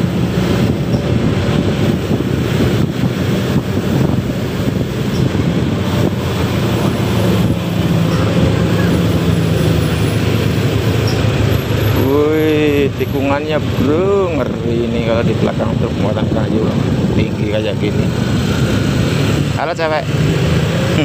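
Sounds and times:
scooter engine: 0:00.0 - 0:15.0
truck engine droning: 0:00.0 - 0:21.0
wind rushing over microphone: 0:00.0 - 0:21.0.

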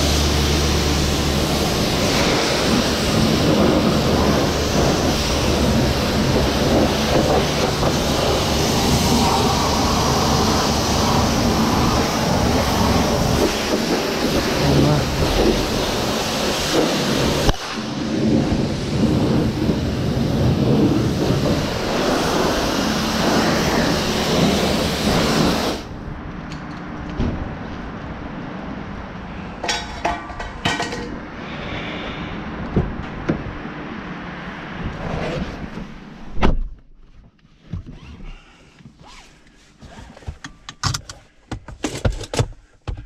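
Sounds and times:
high-pressure water spraying on car: 0:00.0 - 0:25.9.

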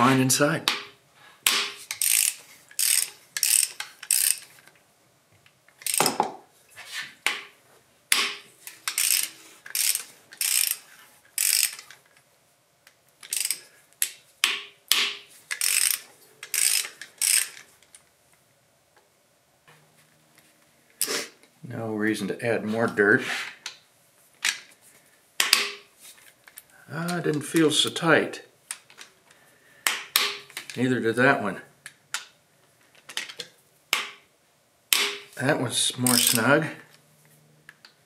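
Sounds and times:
socket ratchet clicking: 0:01.5 - 0:04.5, 0:05.8 - 0:06.2, 0:08.1 - 0:10.8, 0:11.4 - 0:12.0, 0:13.2 - 0:17.6.

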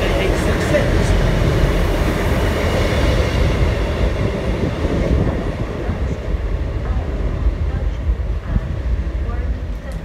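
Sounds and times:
diesel train engine rumble: 0:00.0 - 0:10.0
train wheels on rails: 0:00.0 - 0:10.0.

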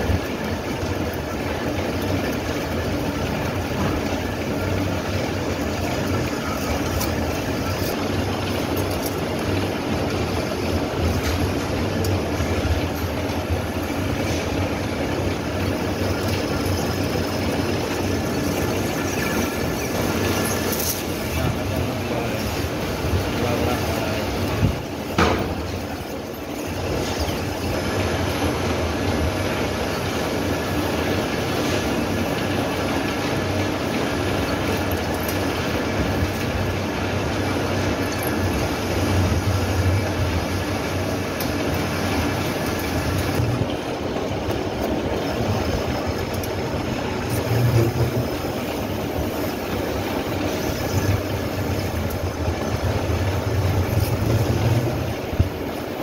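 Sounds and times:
lathe mechanical clatter: 0:00.0 - 0:56.0
sharp knocks: 0:25.2 - 0:25.7.

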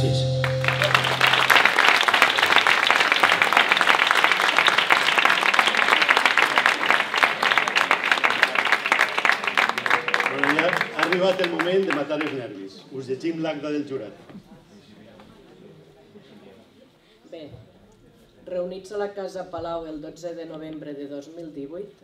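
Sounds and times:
low backing music note: 0:00.0 - 0:01.5
audience applauding: 0:00.0 - 0:12.4.

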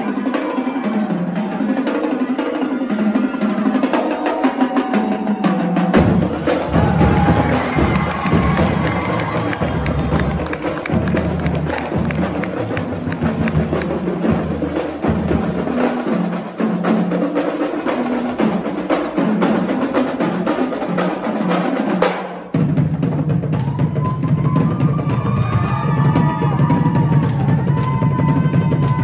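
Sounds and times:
voices whooping and crying out: 0:00.0 - 0:10.8, 0:23.6 - 0:29.0
snare and bass drums playing: 0:03.3 - 0:29.0.

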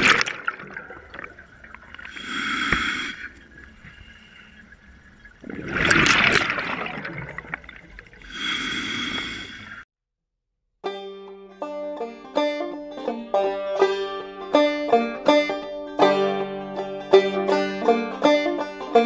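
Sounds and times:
exhaled bubbles rushing: 0:00.0 - 0:02.2, 0:05.3 - 0:08.3
hissing regulator inhale: 0:02.0 - 0:04.8, 0:08.2 - 0:09.8.

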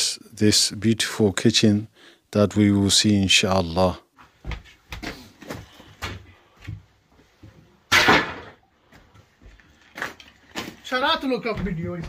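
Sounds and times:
building work knocks and clatters: 0:04.3 - 0:12.0
loud bang: 0:07.9 - 0:08.6.

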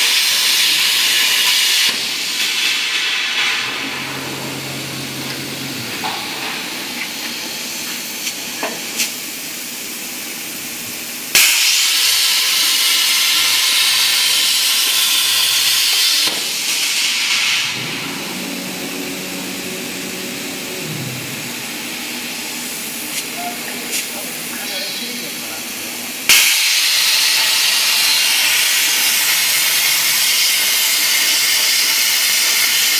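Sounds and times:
low machine hiss: 0:03.6 - 0:09.8, 0:16.6 - 0:26.3
plasma torch arc hissing: 0:11.3 - 0:25.6, 0:26.2 - 0:32.9.

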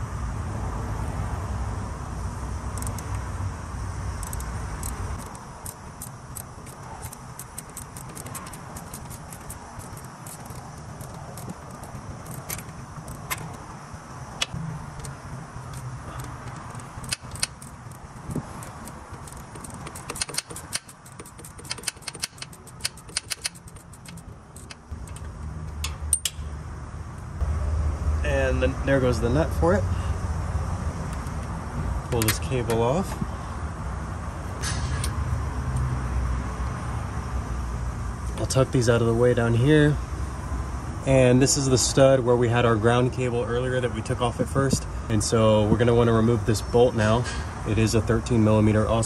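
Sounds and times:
hand ratchet clicking: 0:04.2 - 0:13.6, 0:14.4 - 0:26.4
metal tools tapping and clinking: 0:15.0 - 0:26.4.

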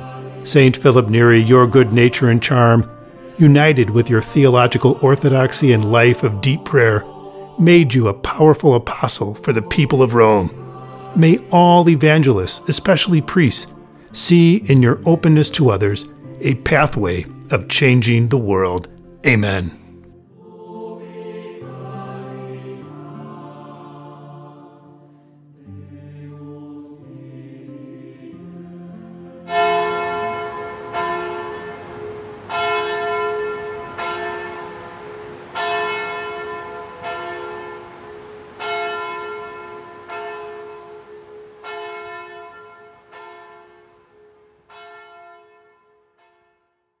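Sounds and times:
sung chant: 0:00.0 - 0:29.5
large bell tolling: 0:29.5 - 0:45.8.

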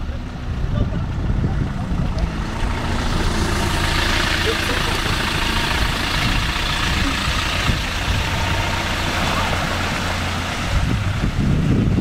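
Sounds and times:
car engine running: 0:00.0 - 0:12.0
vehicle driving through water: 0:00.0 - 0:12.0.

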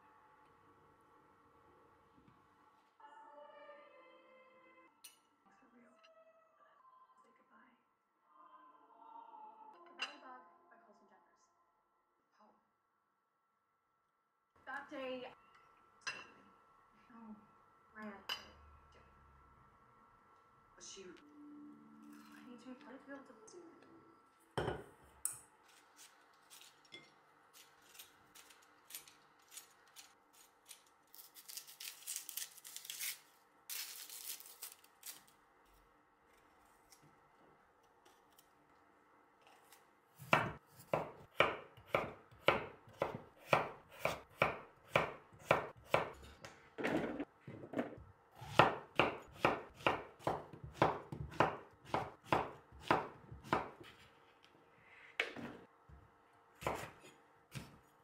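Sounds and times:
vegetables being peeled: 0:25.5 - 0:38.8
knife chopping on wooden board: 0:40.2 - 0:46.2, 0:48.5 - 0:54.0, 0:56.6 - 0:57.8.

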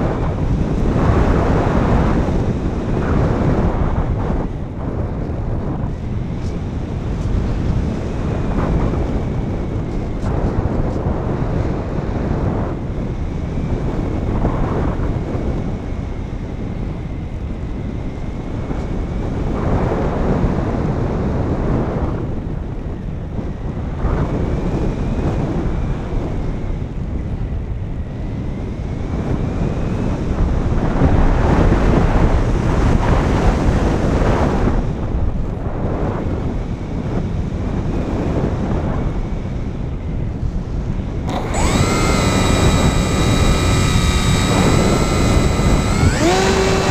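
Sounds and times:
wind rushing over microphone: 0:00.0 - 0:46.9
faint motor whine: 0:39.0 - 0:46.9.

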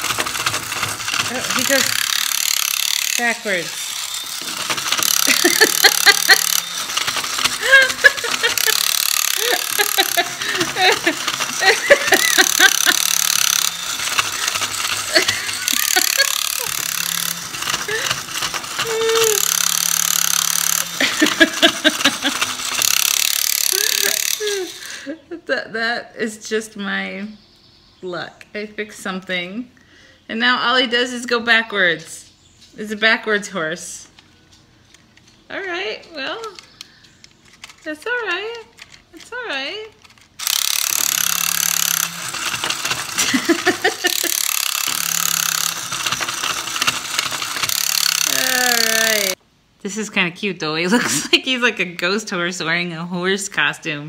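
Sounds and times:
rapid clicking rattling mechanism: 0:00.0 - 0:24.9, 0:37.4 - 0:49.4
toy horse motor and gears: 0:00.0 - 0:25.2, 0:34.9 - 0:49.4.

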